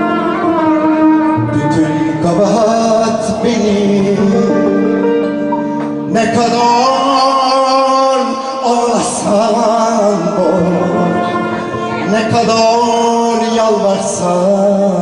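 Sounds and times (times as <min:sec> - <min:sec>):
man singing into a microphone: 0:00.0 - 0:15.0
plucked string ensemble: 0:00.0 - 0:15.0.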